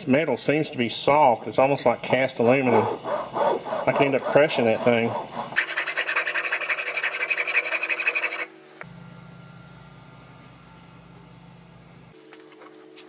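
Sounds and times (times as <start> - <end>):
hand file rasping on metal: 2.1 - 8.5.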